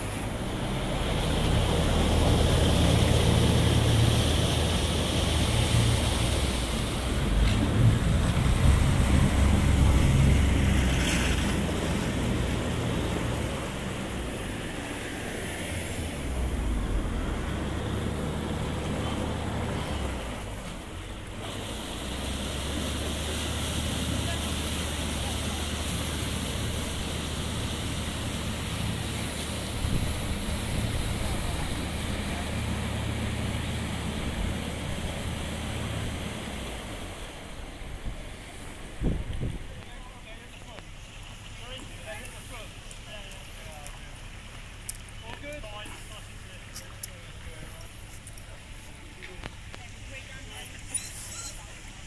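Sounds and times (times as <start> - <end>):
boat diesel engine running: 0.0 - 52.0
propeller churning water: 0.0 - 52.0
wind buffeting microphone: 38.9 - 39.9.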